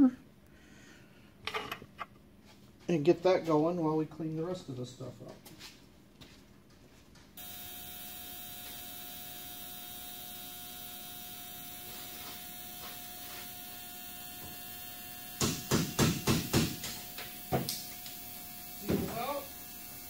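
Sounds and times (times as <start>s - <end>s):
ultrasonic cleaner humming: 7.4s - 20.0s
sharp knocks: 15.4s - 17.7s.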